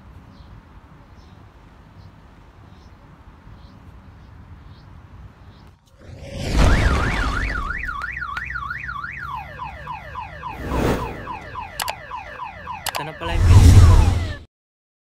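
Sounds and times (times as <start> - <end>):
car alarm: 6.5 - 14.4.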